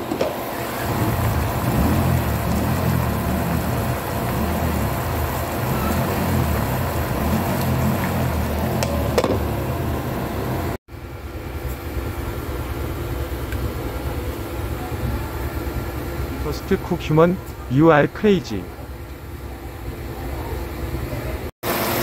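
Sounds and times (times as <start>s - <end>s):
sausages sizzling in a pan: 0.8s - 8.7s.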